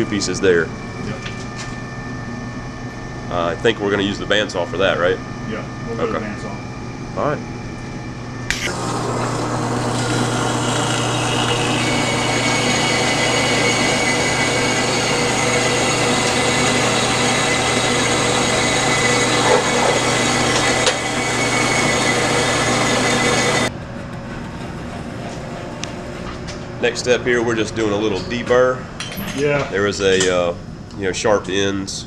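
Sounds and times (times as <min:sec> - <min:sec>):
band saw motor hum: 0:08.4 - 0:29.0.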